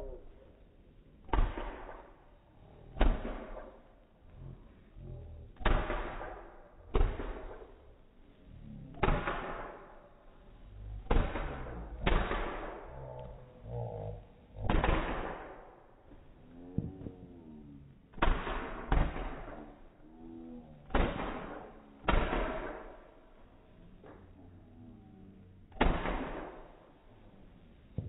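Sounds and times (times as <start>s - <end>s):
fireworks bangs echoing: 1.3s - 2.2s, 3.0s - 3.9s, 5.6s - 7.8s, 8.9s - 10.2s, 11.0s - 12.9s, 14.6s - 16.0s, 18.1s - 19.9s, 20.8s - 23.2s, 25.8s - 26.9s.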